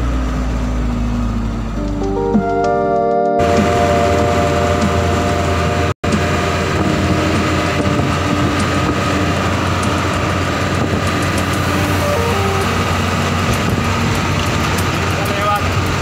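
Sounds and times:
road noise: 0.0 - 16.0
truck engine drone: 0.0 - 16.0.

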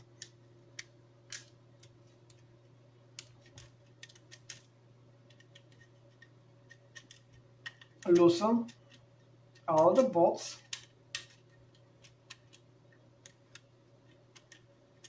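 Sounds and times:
hex key clicking on screws: 3.2 - 4.7, 5.3 - 9.0, 9.6 - 15.0.

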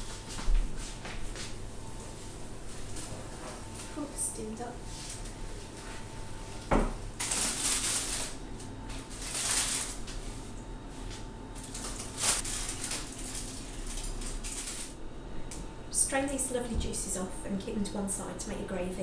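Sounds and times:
aluminium foil crinkling: 7.2 - 10.2, 11.6 - 15.0.

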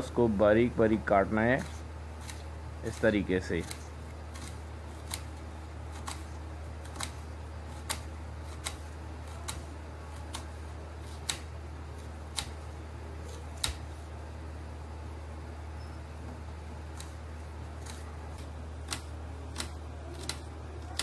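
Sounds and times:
knife slicing onion: 1.5 - 14.0, 16.8 - 21.0.

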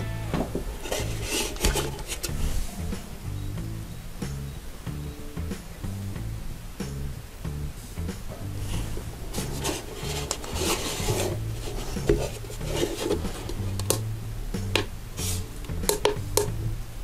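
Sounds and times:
guitar music: 0.0 - 16.9
rubbing and clicks of metal case: 0.8 - 2.3, 8.9 - 14.0.

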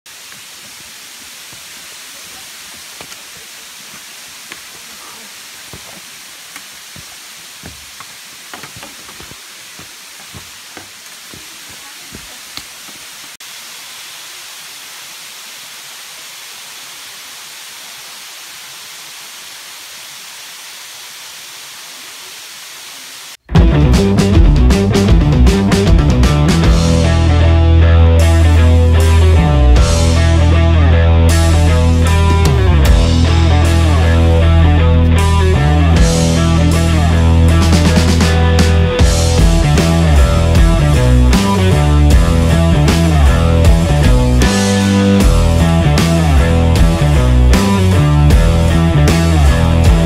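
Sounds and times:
waterfall rushing: 0.1 - 23.4
footfalls and knocks on trail: 0.2 - 4.9, 5.6 - 13.4.

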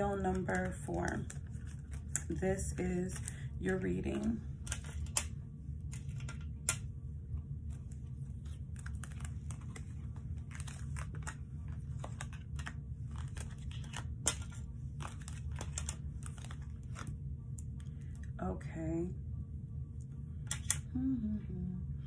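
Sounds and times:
cards being shuffled: 0.0 - 3.4, 4.1 - 6.9, 7.6 - 18.2
steady low hum: 0.0 - 22.0.

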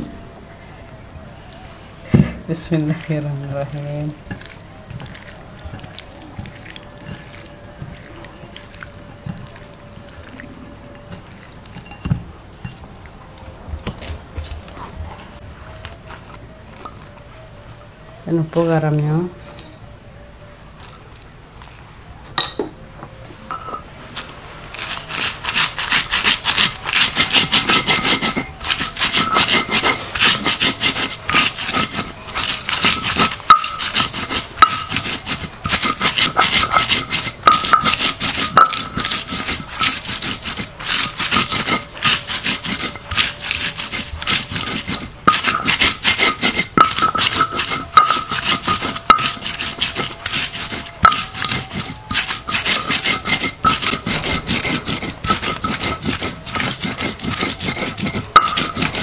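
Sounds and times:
hands rubbing fish in bowl: 2.6 - 12.0, 24.2 - 59.0.

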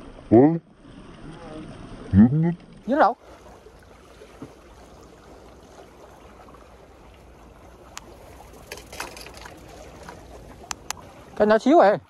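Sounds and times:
water lapping against embankment: 0.0 - 12.0
sharp clicks: 10.6 - 11.0.

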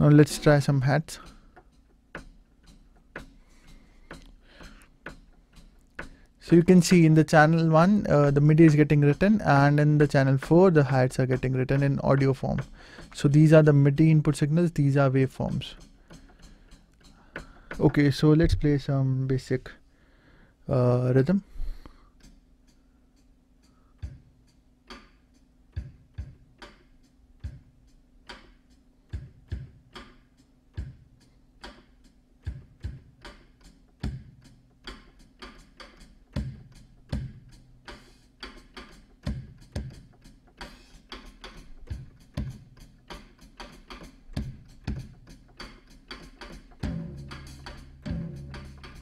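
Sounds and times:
hi-hat hits: 0.0 - 19.8, 20.9 - 49.0
kick drum: 25.8 - 26.5, 27.4 - 27.7, 29.1 - 30.0, 30.8 - 31.1, 32.4 - 33.2, 34.0 - 34.4, 36.4 - 37.5, 39.3 - 40.1, 41.9 - 42.7, 44.3 - 45.2.

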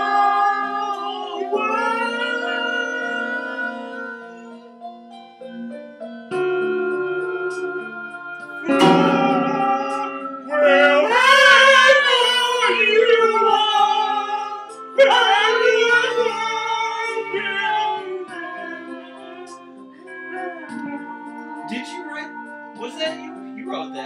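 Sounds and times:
person singing long notes: 0.0 - 4.6, 6.6 - 22.8
keyboard sustained chords: 0.0 - 24.0
electric guitar strum: 6.3 - 14.2.

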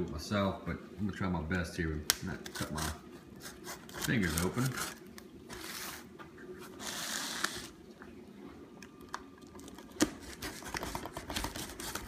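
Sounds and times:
packing tape tearing: 6.8 - 7.8, 9.6 - 12.0.

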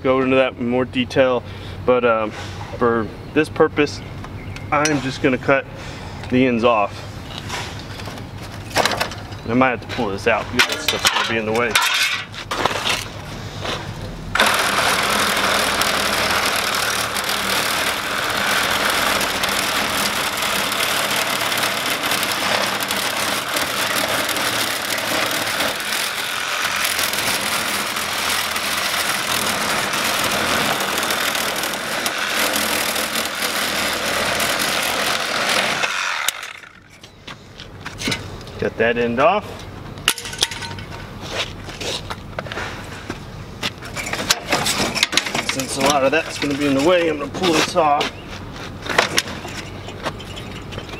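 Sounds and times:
reciprocating saw cutting metal: 14.3 - 37.0.

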